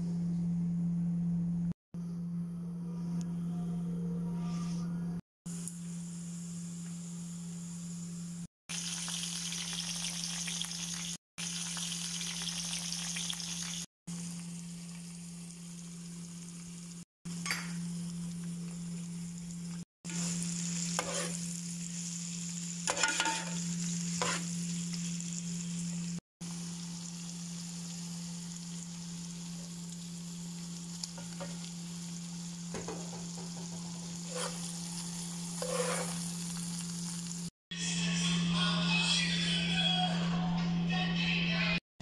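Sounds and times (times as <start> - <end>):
shrimp sizzling in oil: 8.7 - 37.5
metal spoon scraping pan: 20.9 - 21.4, 22.9 - 23.6, 34.2 - 34.8, 35.6 - 36.3.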